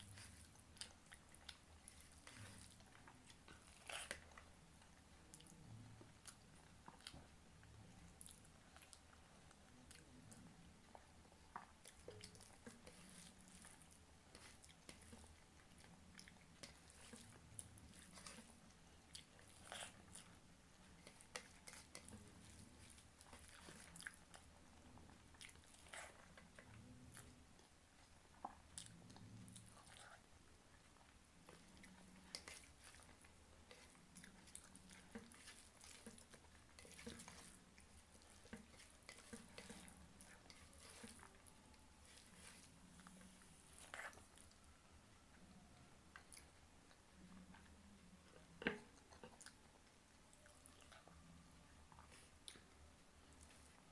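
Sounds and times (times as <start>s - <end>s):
wet chewing and mouth sounds: 0.0s - 53.9s
fingers squishing food: 9.8s - 45.4s.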